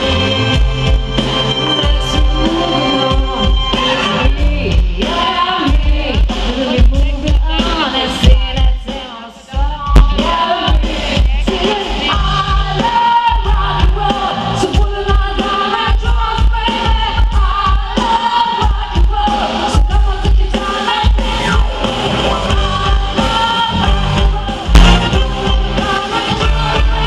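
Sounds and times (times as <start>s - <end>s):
bass drum beat: 0.0s - 9.0s, 9.6s - 27.0s
backing singers: 0.0s - 27.0s
live rock band with strings: 0.0s - 27.0s
woman singing lead: 0.0s - 27.0s.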